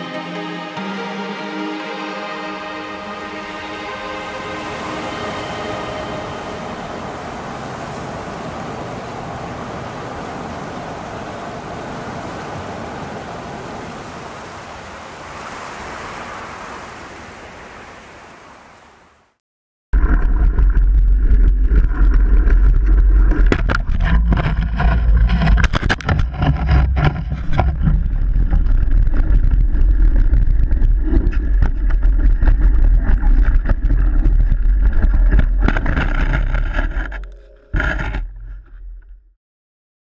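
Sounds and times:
wind rumble on microphone: 20.0s - 39.2s.

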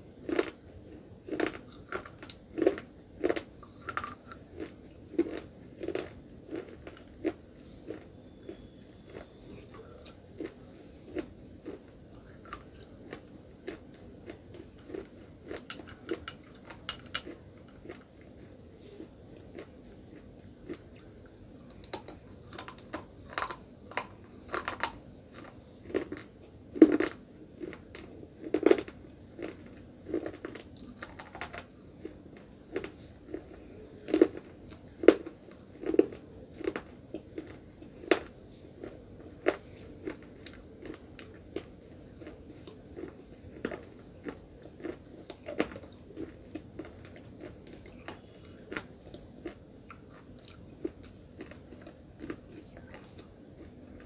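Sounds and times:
biting and chewing chalky sticks: 0.0s - 54.0s.

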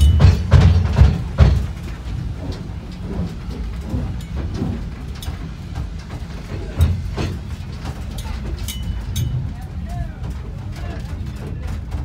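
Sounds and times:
knocks: 0.0s - 5.5s
loader engine rumbling: 0.0s - 12.0s.

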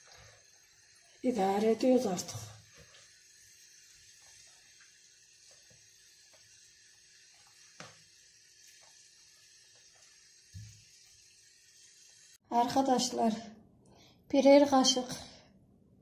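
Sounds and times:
room hiss: 0.0s - 12.4s.

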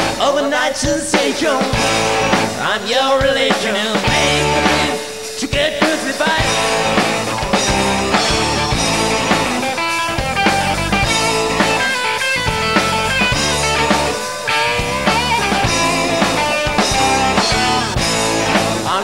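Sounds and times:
lead electric guitar line: 0.0s - 19.0s
rock band playing live: 0.0s - 19.0s.

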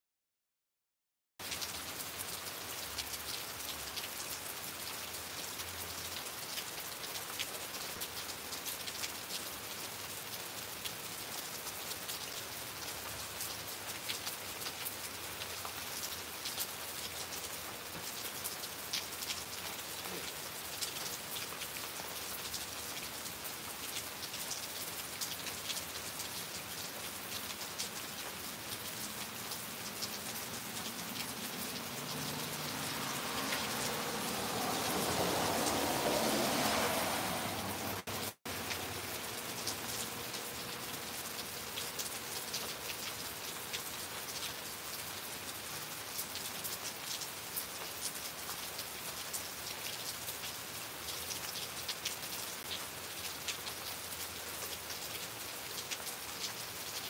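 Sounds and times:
raindrops ticking: 1.4s - 36.4s
steady rain: 1.4s - 57.0s.

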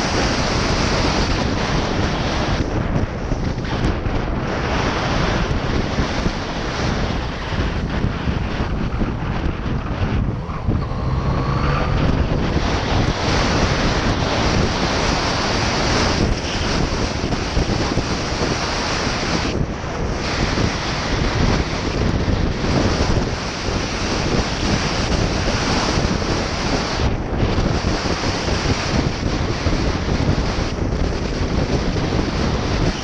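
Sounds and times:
heavy wind on microphone: 0.0s - 33.0s
motorcycle engine: 9.0s - 17.4s
faint rising tone: 10.3s - 12.4s.

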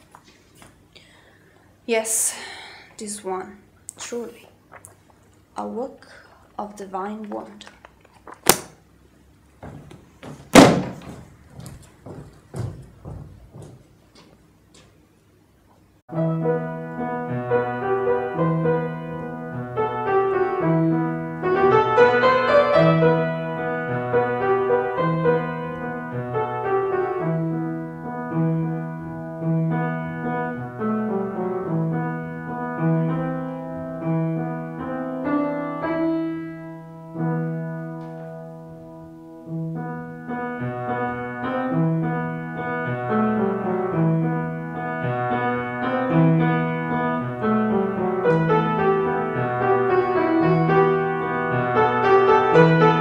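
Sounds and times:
knocks: 9.6s - 14.3s
loud thud: 9.7s - 11.4s
solo piano music: 16.1s - 53.0s.

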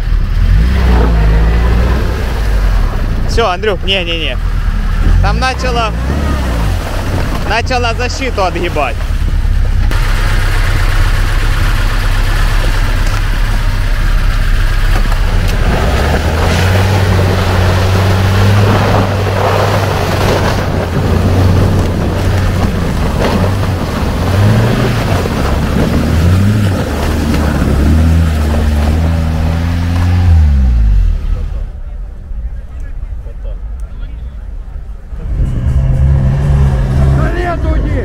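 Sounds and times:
off-road vehicle engine labouring: 0.0s - 38.0s
water churning: 0.8s - 30.5s.

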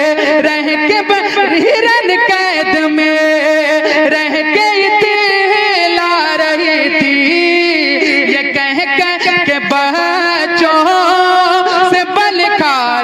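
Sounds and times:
man singing ornamented notes: 0.0s - 13.0s.

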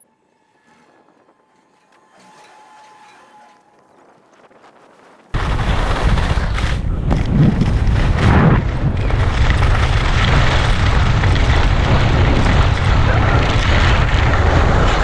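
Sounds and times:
wind buffeting microphone: 3.7s - 15.0s.

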